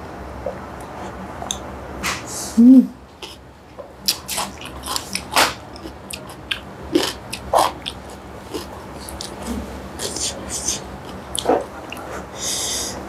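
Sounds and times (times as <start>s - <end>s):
close-miked chewing noodles: 3.2s - 3.4s, 4.0s - 12.6s.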